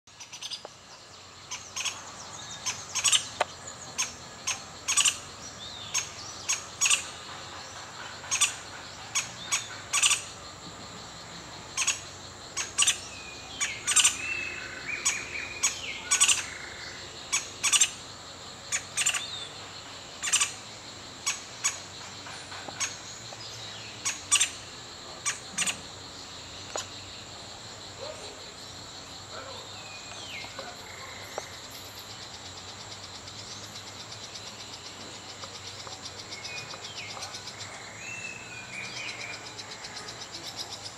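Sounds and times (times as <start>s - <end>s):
high insect drone: 0.1s - 40.9s
woodpecker calling sharp notes: 1.5s - 7.3s, 7.9s - 10.4s, 11.8s - 18.0s, 18.7s - 19.6s, 20.2s - 20.6s, 24.0s - 25.8s.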